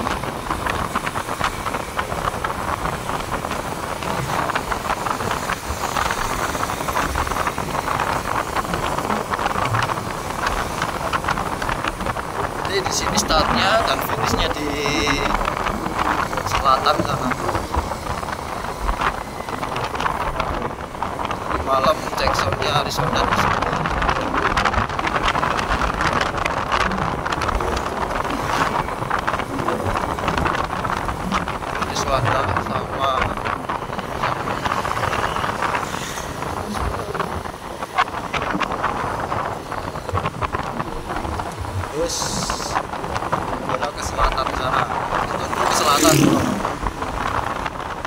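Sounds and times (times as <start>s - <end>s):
motorcycle engine and tyre noise: 0.0s - 48.0s
traffic: 0.0s - 48.0s
wind buffeting microphone: 0.0s - 48.0s.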